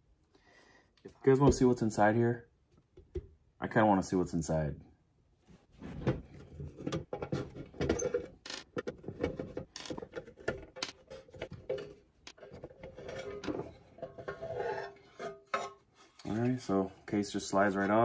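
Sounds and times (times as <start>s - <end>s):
clicks knocks and scrapes: 5.8s - 16.5s.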